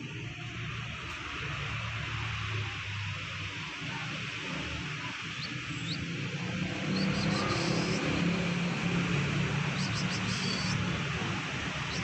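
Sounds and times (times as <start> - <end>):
steady outdoor hiss: 0.0 - 12.0
small birds chirping: 4.8 - 12.0.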